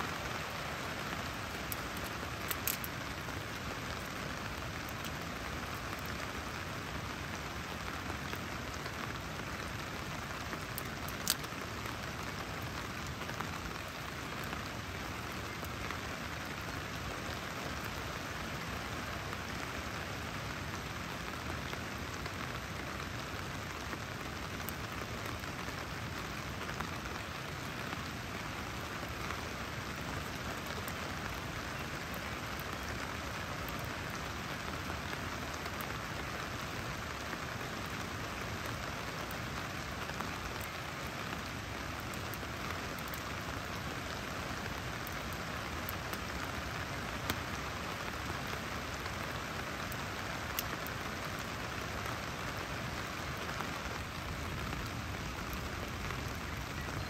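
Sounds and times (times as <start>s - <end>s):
steady rain hiss: 0.0s - 57.0s.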